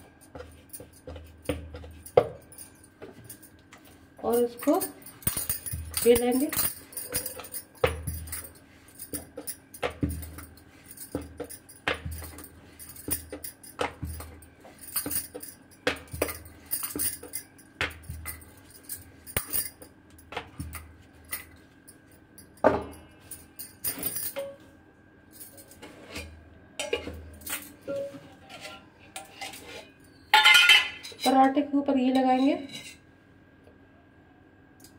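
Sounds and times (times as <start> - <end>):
bangles clinking: 0.0 - 24.6, 29.2 - 31.4.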